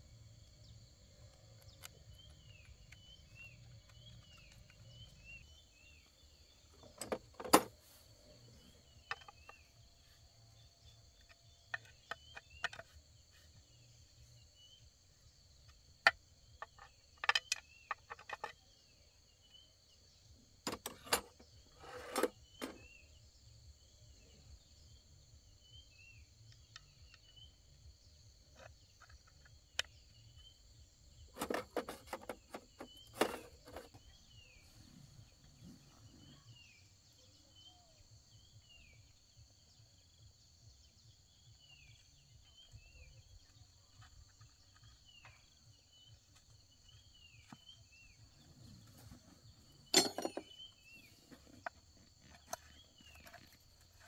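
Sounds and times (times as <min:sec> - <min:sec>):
bird chirps: 0:00.0 - 0:54.0
sharp clicks and knocks: 0:06.7 - 0:07.7, 0:49.9 - 0:50.6.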